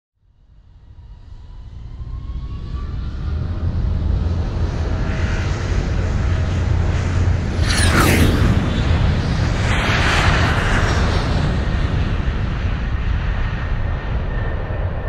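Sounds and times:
jet flying by: 2.2 - 15.0.

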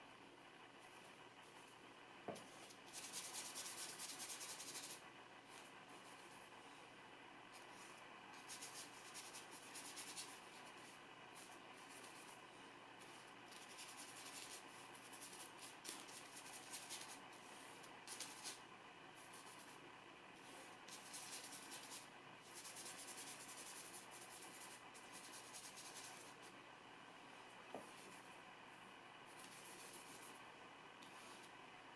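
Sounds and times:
brush strokes on paper: 31.0 - 31.5.

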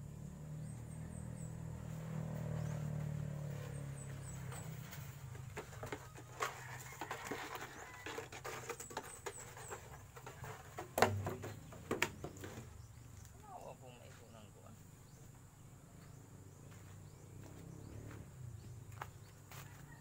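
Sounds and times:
objects handled clicking and rustling: 4.2 - 13.4.

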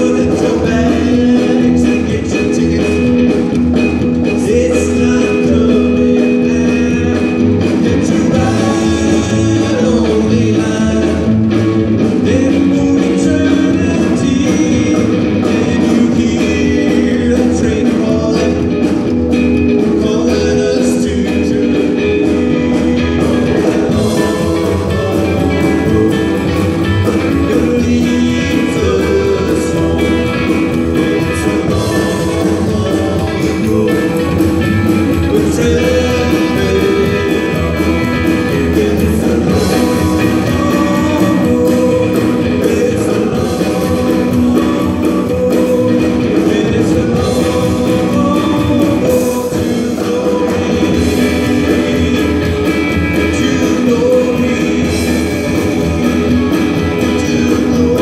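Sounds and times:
double bass: 0.0 - 58.0
drum kit: 0.0 - 58.0
electric guitar: 0.0 - 58.0
man singing: 0.0 - 58.0.

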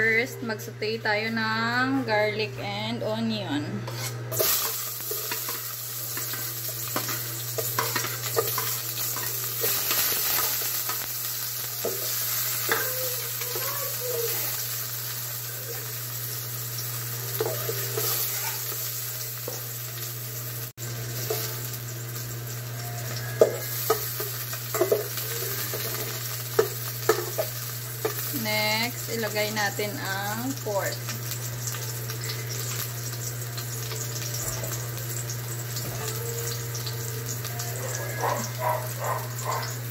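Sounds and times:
garlic and onion sizzling in oil: 3.3 - 39.9
metal spoon stirring and scraping: 3.8 - 10.6.

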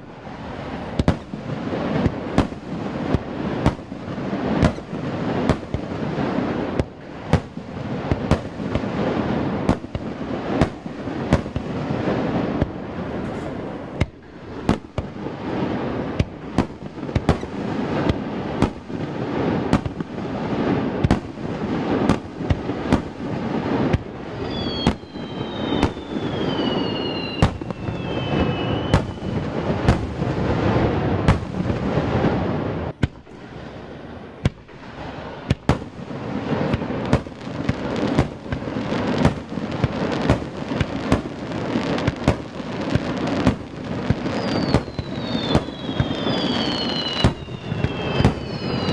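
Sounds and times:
fireworks bangs: 0.0 - 48.9
falling whistles: 24.4 - 29.6, 44.3 - 48.9.

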